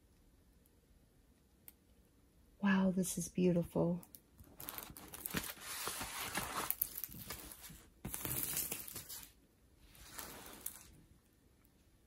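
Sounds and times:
canvas and paper rustling: 4.5s - 11.0s.

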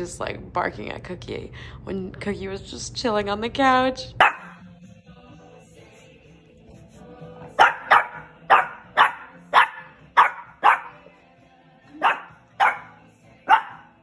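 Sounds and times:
puppy barking: 4.2s - 4.6s, 7.6s - 11.1s, 11.9s - 14.0s.

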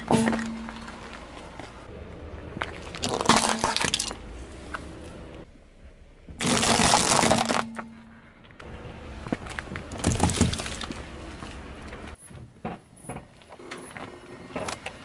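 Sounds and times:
car tyre crushing small objects: 0.0s - 5.5s, 6.3s - 8.6s, 9.2s - 12.1s.

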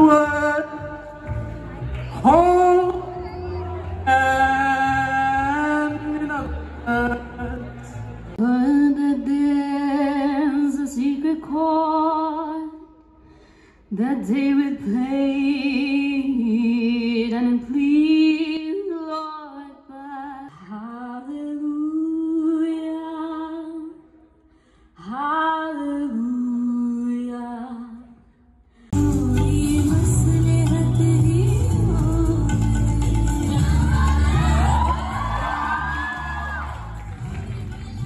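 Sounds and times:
woman singing unaccompanied: 0.0s - 7.7s, 8.4s - 12.9s, 13.9s - 24.0s, 29.0s - 35.4s.

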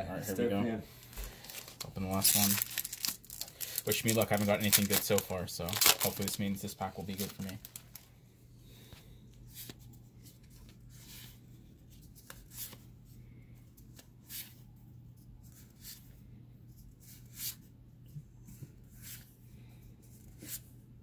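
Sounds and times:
low steady hum: 0.0s - 21.0s
cards rustling: 0.9s - 8.1s.

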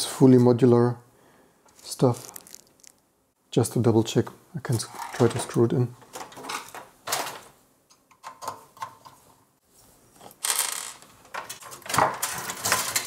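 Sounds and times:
cables rustling: 1.7s - 3.0s.

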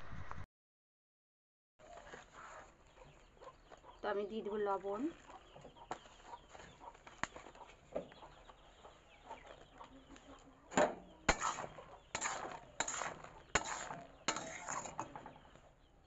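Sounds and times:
hens clucking: 2.4s - 15.5s
cooking pot scraping and clattering: 10.9s - 15.6s.

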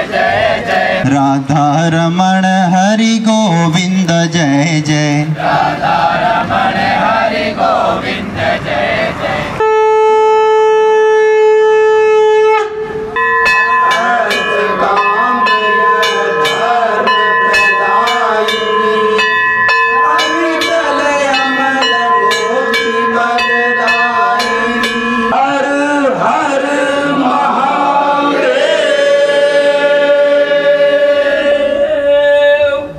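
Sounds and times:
group of voices chanting: 0.0s - 1.1s, 5.3s - 9.6s, 13.8s - 32.1s
steady ringing hum: 13.0s - 26.8s
bells ringing: 13.0s - 27.0s.

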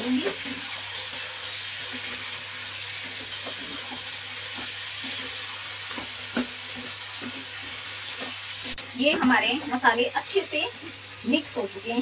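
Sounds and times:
vegetables sizzling in a wok: 0.0s - 12.0s
spoon scraping a pan: 2.9s - 9.8s
spoon knocking on pan: 5.9s - 7.4s.

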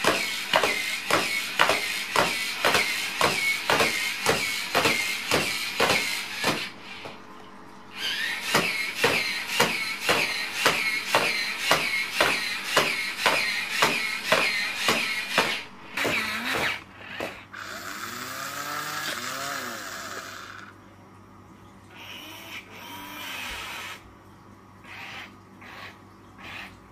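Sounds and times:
quiet steady whirring: 0.0s - 26.9s
robot servo motors whining: 16.0s - 20.7s.

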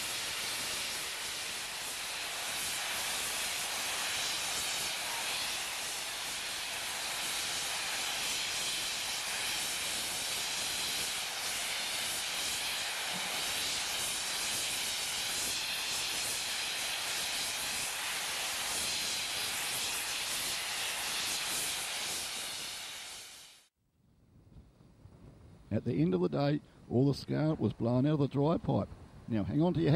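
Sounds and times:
steam hissing from safety valves: 0.0s - 23.7s.

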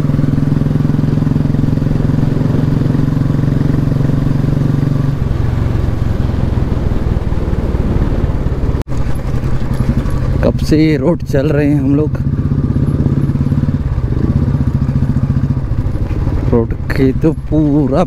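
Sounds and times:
motorcycle engine running: 0.0s - 18.0s
wind noise: 1.0s - 10.6s.

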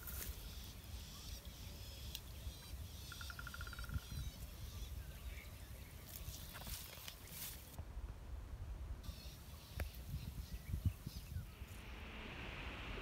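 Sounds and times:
small birds chirping: 0.0s - 7.8s, 9.0s - 12.0s
rapid bird trill: 0.4s - 5.0s
steady low rumble: 11.1s - 13.0s.

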